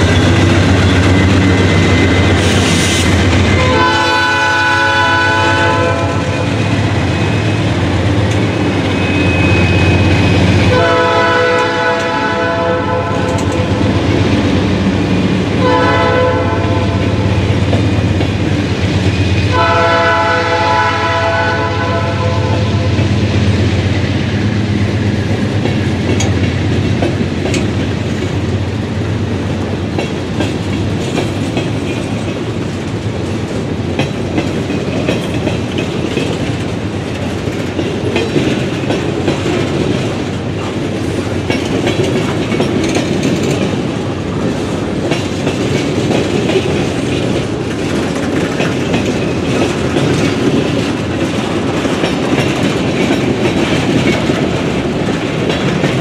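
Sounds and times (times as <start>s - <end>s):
clickety-clack over rail joints: 0.0s - 56.0s
steel wheels rumbling on rail: 0.0s - 56.0s.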